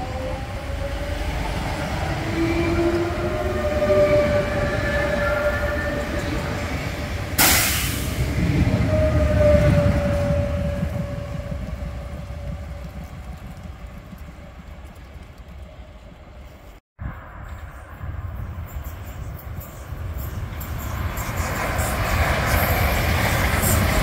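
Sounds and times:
wheels rumbling on rail: 0.0s - 24.0s
loud burst of hiss: 7.4s - 8.2s.

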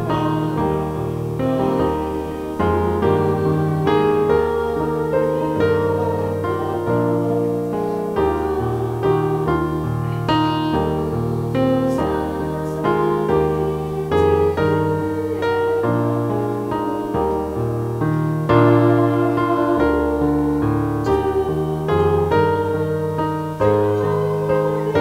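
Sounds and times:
keyboard piano chords: 0.0s - 25.0s.

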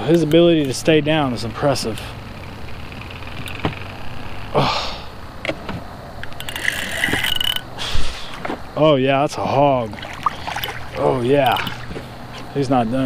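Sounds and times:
low steady background noise: 0.0s - 13.0s
fishing reel clicks: 6.2s - 7.7s.

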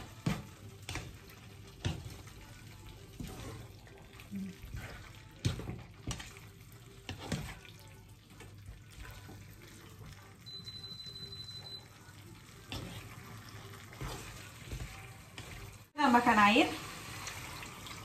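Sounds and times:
spatula scraping pan: 0.0s - 10.2s, 12.6s - 15.9s
food sizzling in a frying pan: 0.0s - 18.0s.

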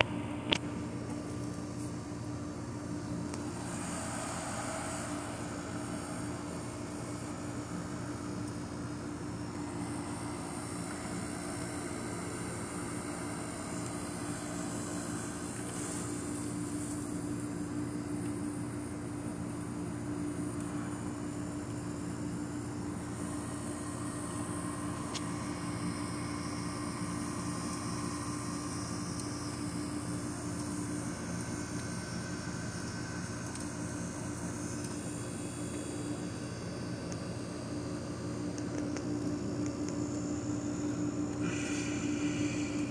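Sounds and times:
low mechanical drone: 0.0s - 42.9s.

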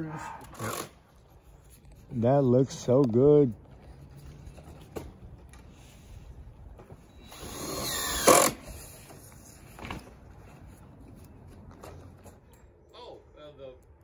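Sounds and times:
cordless drill motor whine: 7.1s - 8.9s.

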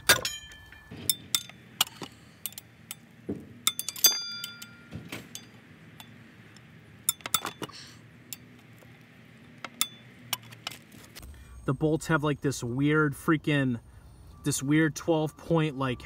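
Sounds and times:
ratchet metal clicks and clinks: 0.1s - 3.1s.

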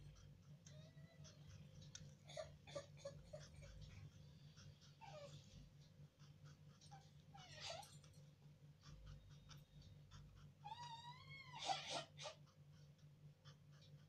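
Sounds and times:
faint animal cries: 0.6s - 1.6s, 6.9s - 8.0s, 10.6s - 12.5s.

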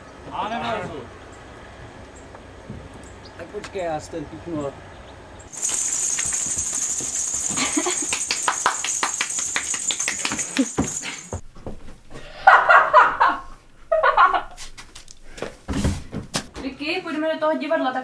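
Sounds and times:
metal coins jingling: 5.5s - 11.4s.

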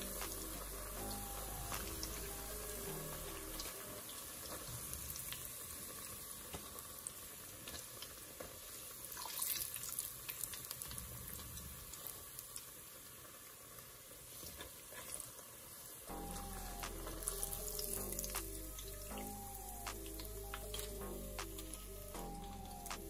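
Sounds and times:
cauliflower frying in oil: 0.0s - 19.6s
oil crackling and popping: 0.0s - 22.2s.

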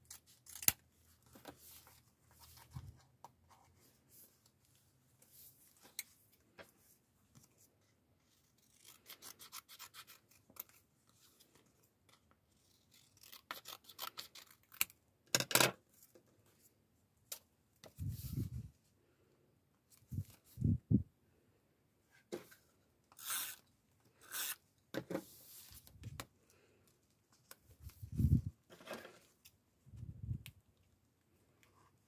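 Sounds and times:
scissors cutting paper: 12.8s - 14.9s.

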